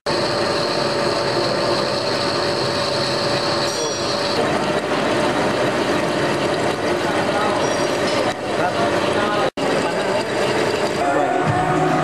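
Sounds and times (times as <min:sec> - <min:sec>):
high machine whine: 0:00.0 - 0:12.0
metal lathe cutting: 0:00.0 - 0:12.0.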